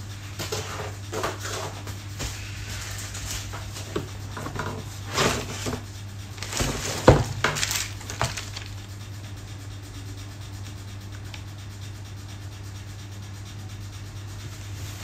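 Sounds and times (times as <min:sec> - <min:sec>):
steady low hum: 0:00.0 - 0:15.0
cardboard and plastic rustling: 0:01.1 - 0:09.0.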